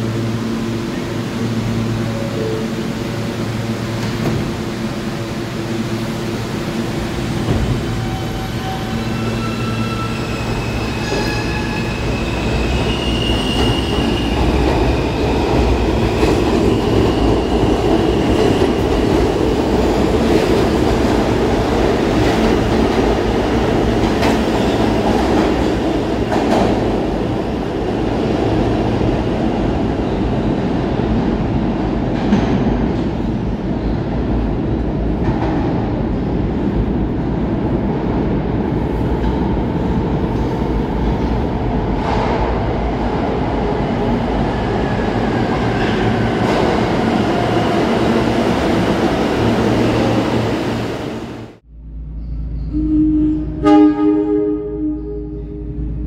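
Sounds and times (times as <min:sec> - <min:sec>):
subway train rumble: 0:00.0 - 0:56.0
high wheel squeals: 0:08.0 - 0:14.4.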